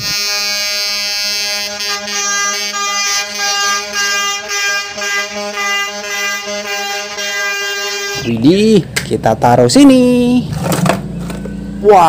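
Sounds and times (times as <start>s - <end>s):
truck air horns: 0.0s - 8.6s.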